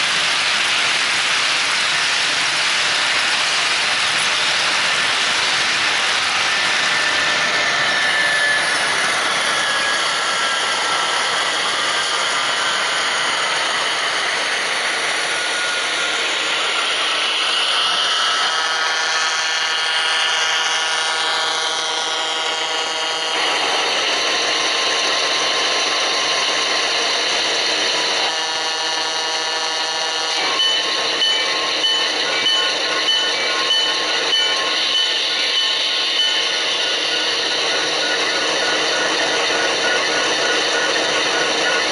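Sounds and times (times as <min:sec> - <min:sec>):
model train motors whirring: 0:00.0 - 0:41.9
wheels on rail joints: 0:00.0 - 0:41.9
multi-note train horn: 0:18.3 - 0:23.4, 0:28.2 - 0:30.5
locomotive bell ringing: 0:29.8 - 0:41.9.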